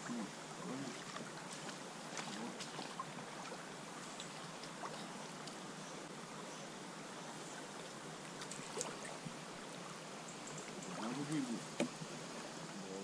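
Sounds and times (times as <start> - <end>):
river water flowing: 0.0 - 13.0
small ticks and plops: 0.9 - 5.6, 7.7 - 9.4, 10.2 - 12.1.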